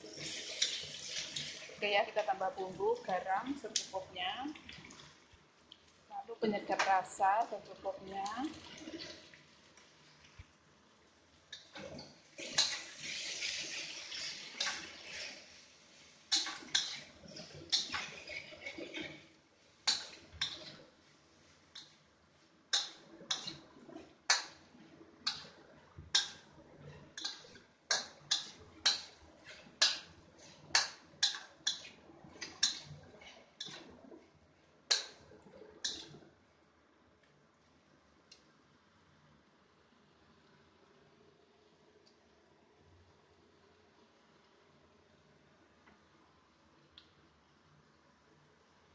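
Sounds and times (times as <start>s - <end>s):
metal spatula scraping a wok: 0.0s - 1.6s, 11.6s - 22.0s, 22.7s - 24.6s, 25.2s - 33.9s, 34.9s - 36.2s.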